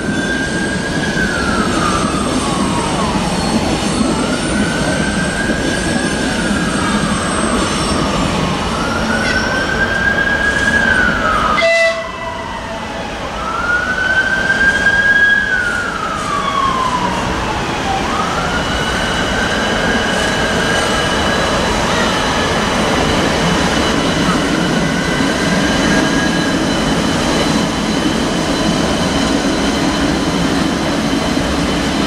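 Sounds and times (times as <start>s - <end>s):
train rumbling past: 0.0s - 32.0s.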